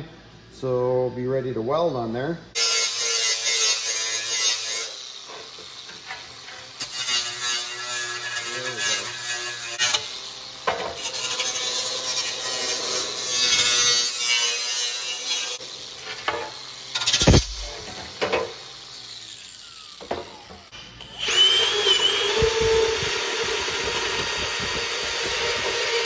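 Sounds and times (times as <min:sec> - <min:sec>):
angle grinder grinding metal: 0:02.6 - 0:26.0
sharp knock: 0:17.2 - 0:17.8.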